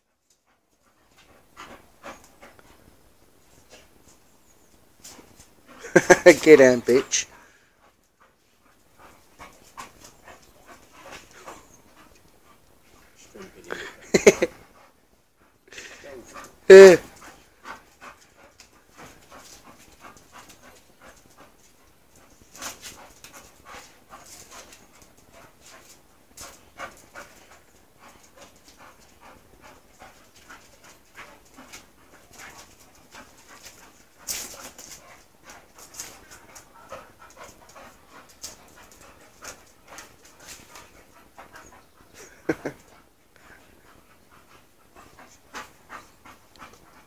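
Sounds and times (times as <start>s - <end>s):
dogs panting: 0.0s - 47.0s
dogs scuffling: 16.2s - 47.0s.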